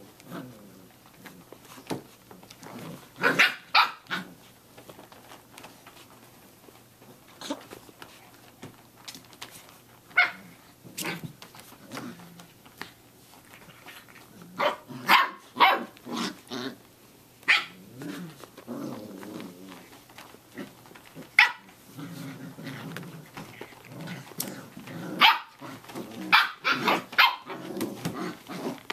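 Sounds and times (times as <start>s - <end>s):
puppies growling: 0.0s - 28.9s
puppies barking: 3.2s - 4.3s, 14.6s - 16.4s, 21.4s - 21.8s, 25.2s - 27.6s.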